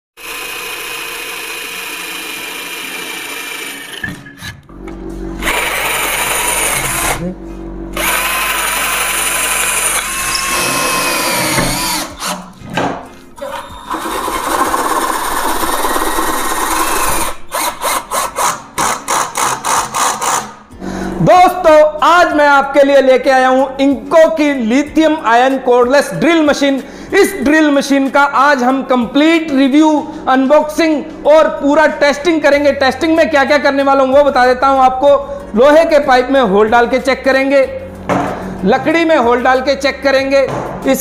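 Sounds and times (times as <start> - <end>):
cordless drill whining: 0.2 - 4.4, 5.4 - 7.2, 8.0 - 12.4, 13.4 - 20.5.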